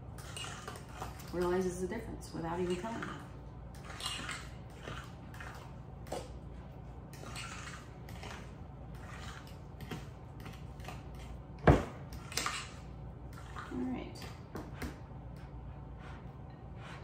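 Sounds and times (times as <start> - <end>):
fork scraping in a bowl: 0.2 - 1.3, 2.6 - 5.7, 7.1 - 11.4.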